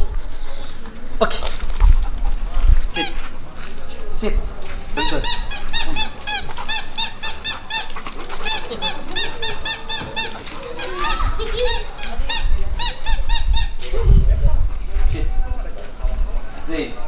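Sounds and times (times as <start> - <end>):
squeaky dog toy squeaking: 5.0 - 14.0.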